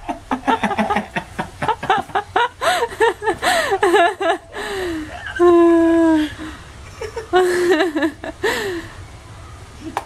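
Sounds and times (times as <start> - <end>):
people laughing hard: 0.1 - 6.2, 7.0 - 8.7.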